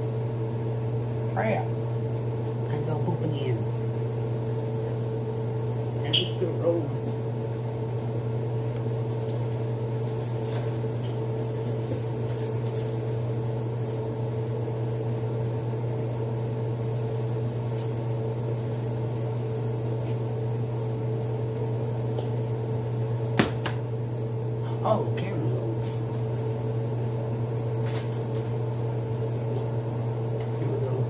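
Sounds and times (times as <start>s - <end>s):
kitchen appliance electrical hum: 0.0s - 31.0s.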